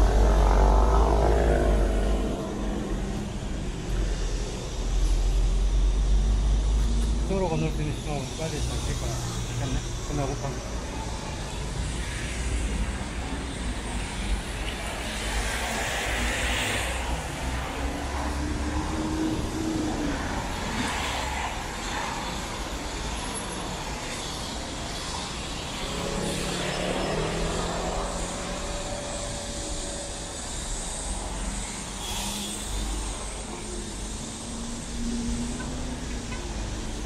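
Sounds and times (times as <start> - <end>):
road traffic rumble: 0.0 - 37.0.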